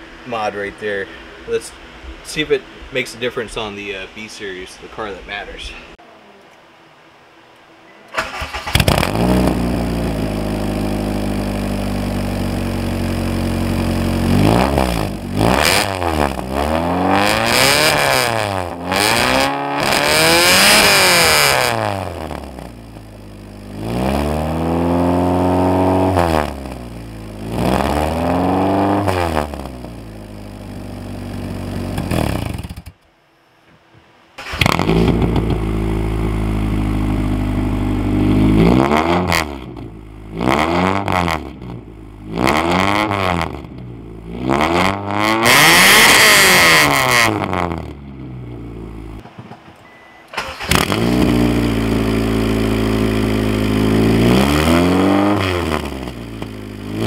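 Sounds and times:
car engine revving through straight pipe: 0:08.8 - 0:22.7, 0:23.6 - 0:29.8, 0:34.6 - 0:47.9, 0:50.7 - 0:57.0.

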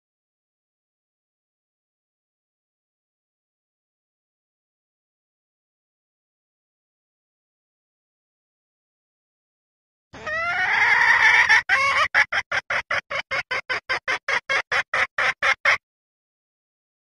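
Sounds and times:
hen calling and clucking: 0:10.2 - 0:15.8.

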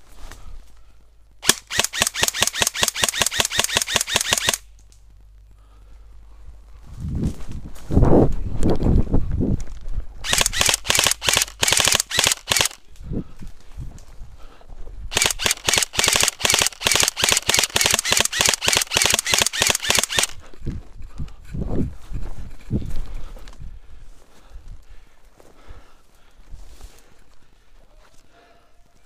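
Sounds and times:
airsoft rifle rapid shots: 0:01.4 - 0:04.7, 0:10.2 - 0:12.8, 0:15.1 - 0:20.4
footsteps through grass: 0:04.8 - 0:11.4, 0:20.4 - 0:28.4.

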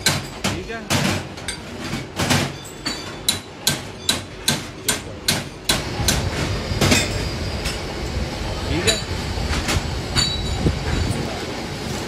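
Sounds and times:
ringing metal strikes: 0:10.2 - 0:10.6.

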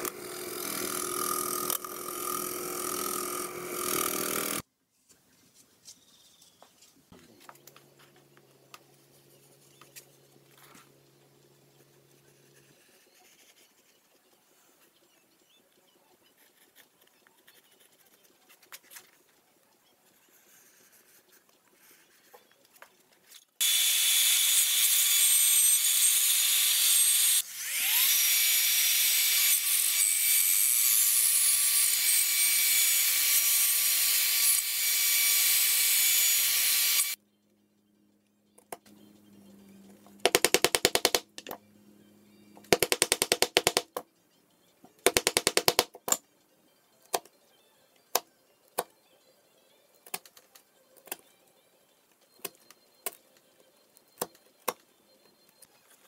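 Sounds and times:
power tool running at high speed: 0:00.0 - 0:04.6, 0:23.6 - 0:37.2.

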